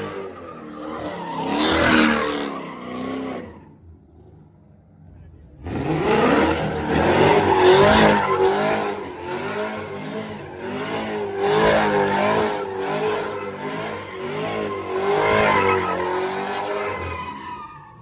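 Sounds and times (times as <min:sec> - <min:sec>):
car engine revving: 0:00.0 - 0:17.8
tires spinning on pavement: 0:00.0 - 0:18.0.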